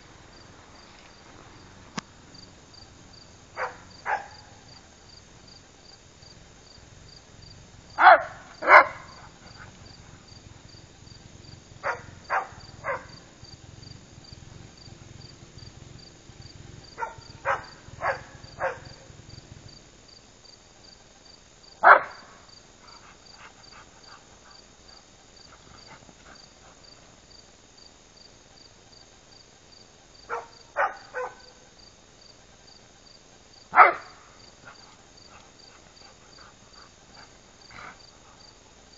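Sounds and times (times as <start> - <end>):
crickets chirping: 0.0 - 38.9
dogs barking: 3.5 - 4.7, 7.9 - 10.3, 11.7 - 13.5, 16.6 - 19.3, 21.8 - 24.6, 30.2 - 31.7, 33.7 - 38.0.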